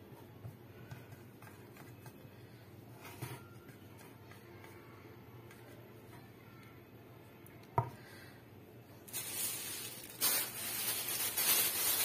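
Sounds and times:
cling film rustling and crinkling: 0:09.1 - 0:12.0.

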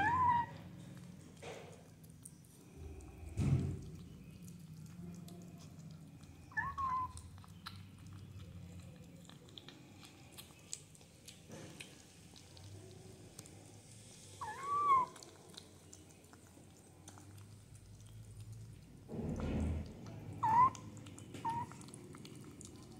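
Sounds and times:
kitten meowing: 0:00.0 - 0:00.6, 0:06.5 - 0:07.2, 0:14.4 - 0:15.2, 0:20.4 - 0:20.8
kittens chewing and lapping: 0:00.0 - 0:22.9.

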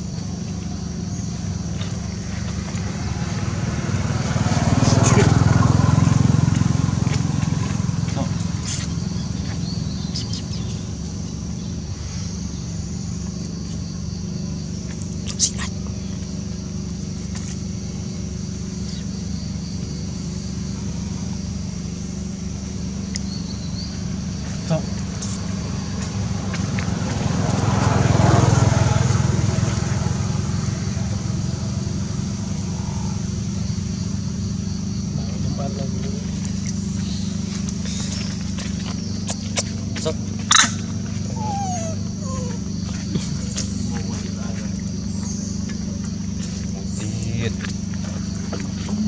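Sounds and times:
engine running: 0:00.0 - 0:49.0
faint bird chirps: 0:08.1 - 0:16.4, 0:18.7 - 0:20.6.

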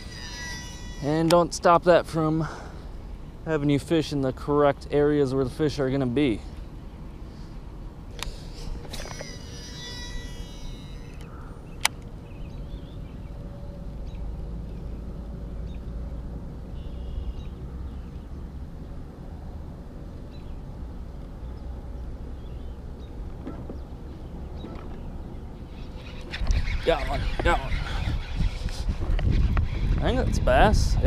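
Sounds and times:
low outdoor rumble on water: 0:00.0 - 0:31.0
birds calling: 0:06.4 - 0:19.0, 0:20.1 - 0:30.7.

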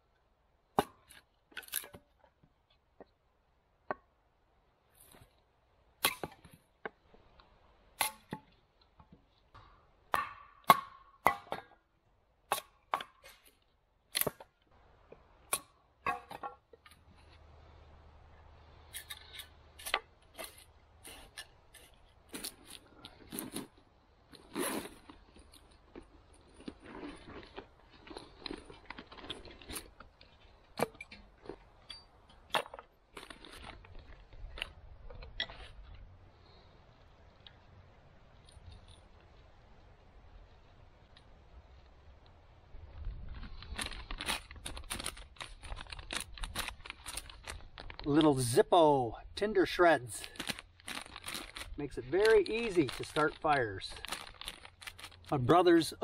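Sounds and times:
hatchet striking wood: 0:09.6 - 0:11.8
sticks rustling and clattering: 0:18.8 - 0:23.8, 0:43.0 - 0:48.6, 0:49.5 - 0:56.0.

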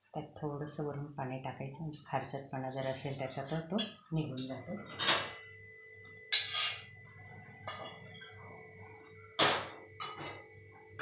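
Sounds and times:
metal pot clanking on stove: 0:09.4 - 0:10.5.

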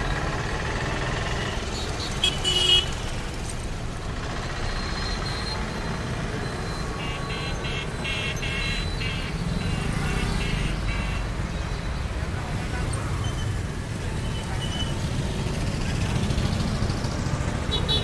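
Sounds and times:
vehicle horn toot: 0:02.0 - 0:03.0, 0:17.7 - 0:18.0
motorcycles and scooters passing: 0:12.1 - 0:18.0.

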